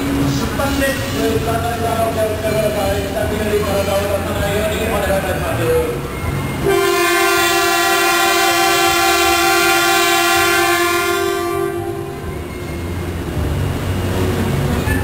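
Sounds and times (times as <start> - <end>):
train horn blast: 6.6 - 12.4.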